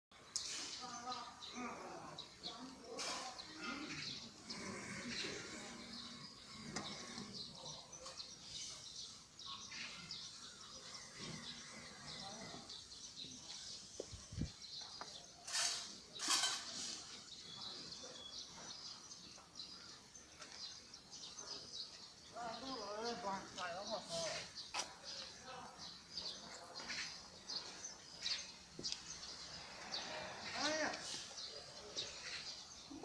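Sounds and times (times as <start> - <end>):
faint voices: 0.6 - 20.7.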